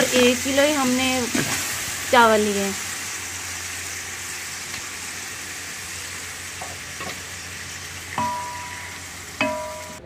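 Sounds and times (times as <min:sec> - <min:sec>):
meat sizzling in hot fat: 0:00.0 - 0:10.0
sharp metal clang: 0:08.2 - 0:10.0.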